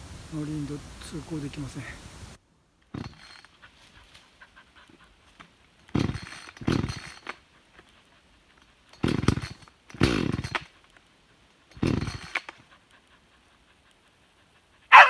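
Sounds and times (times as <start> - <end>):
chainsaw recoil starter pulls: 2.8 - 4.2, 5.3 - 8.0, 8.6 - 13.0.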